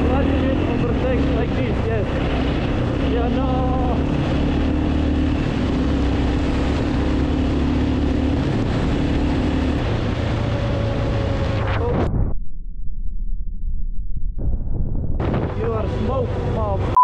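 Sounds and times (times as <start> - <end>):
motorcycle engine running: 0.0 - 11.5
wind noise: 0.0 - 12.5, 14.1 - 16.9.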